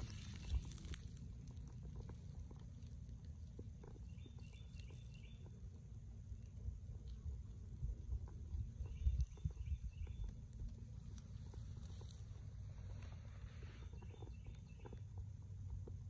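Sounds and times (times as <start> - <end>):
steady low rumble: 0.0 - 16.0
bird chirping: 3.8 - 5.8, 8.5 - 10.5, 13.6 - 15.2.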